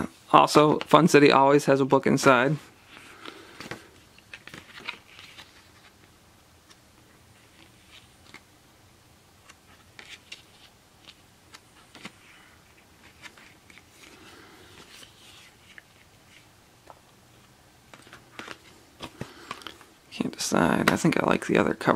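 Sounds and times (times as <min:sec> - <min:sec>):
booklet pages flipping: 0:02.8 - 0:08.5, 0:09.4 - 0:20.0
cardboard slipcover rustling: 0:02.8 - 0:08.5, 0:09.4 - 0:20.0.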